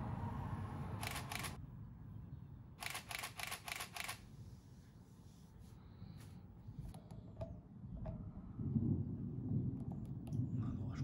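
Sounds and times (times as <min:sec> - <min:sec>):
camera shutter clicks: 0:01.0 - 0:01.6, 0:02.8 - 0:04.2
low rumble: 0:07.9 - 0:11.0.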